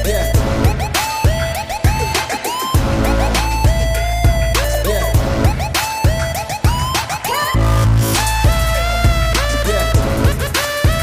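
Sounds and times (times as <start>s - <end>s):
electronic music: 0.0s - 11.0s.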